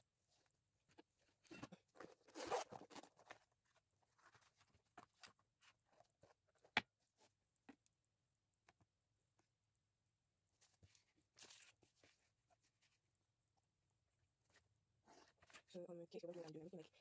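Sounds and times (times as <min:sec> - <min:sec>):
paper rustling: 0:10.6 - 0:13.0.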